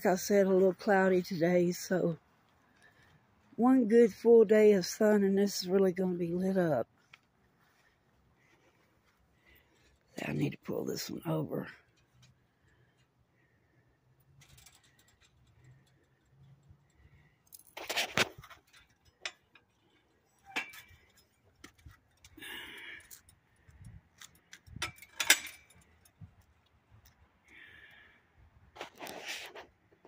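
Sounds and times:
plastic rope light rustling: 14.2 - 22.4.

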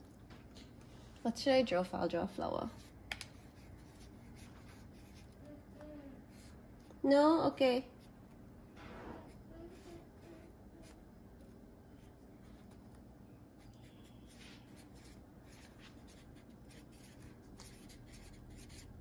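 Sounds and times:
marker scratching on paper: 2.7 - 7.0, 13.6 - 19.0.

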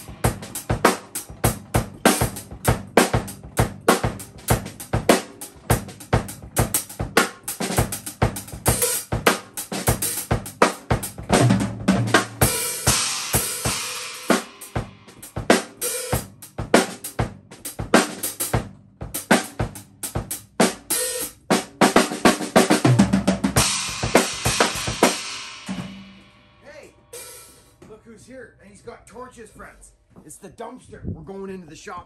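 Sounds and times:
drum kit beat: 0.0 - 28.9
cymbal crashes: 23.6 - 27.7.

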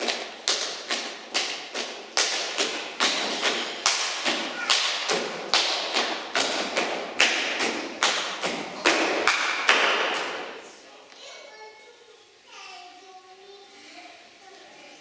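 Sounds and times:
hands slapping boots and legs: 0.0 - 10.4.

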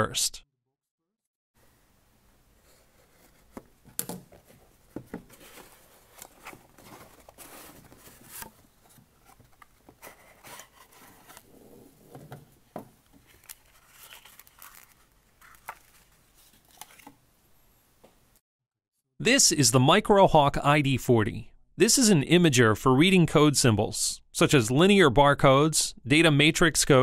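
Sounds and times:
cardboard flaps scraping and rustling: 2.6 - 17.2
plastic bag crinkling: 13.2 - 17.0.

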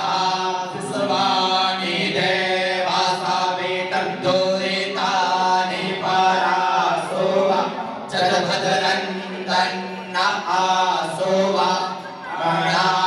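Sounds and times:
men chanting mantras: 0.0 - 13.0.

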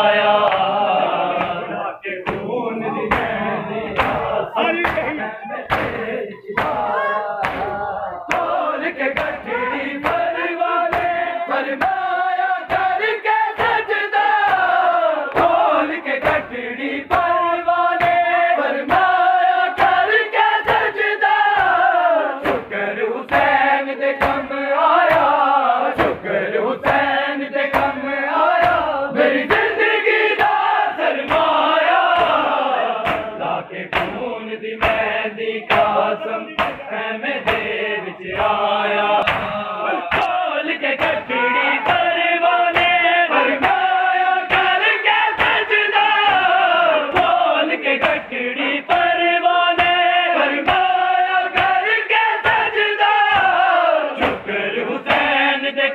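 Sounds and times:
men chanting together: 0.0 - 55.9
hands slapping chests: 0.4 - 2.5, 3.1 - 19.2, 19.8 - 20.9, 21.5 - 22.7, 23.3 - 34.2, 34.8 - 47.4, 48.0 - 55.3.

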